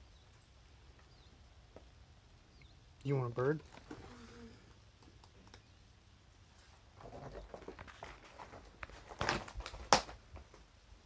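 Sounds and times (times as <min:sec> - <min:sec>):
footsteps on rubble: 0:07.0 - 0:10.7.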